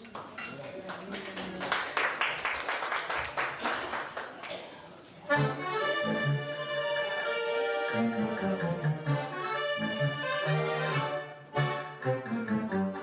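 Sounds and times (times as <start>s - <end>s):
audience applause: 0.8s - 4.7s
accordion orchestra playing a march: 5.3s - 13.0s.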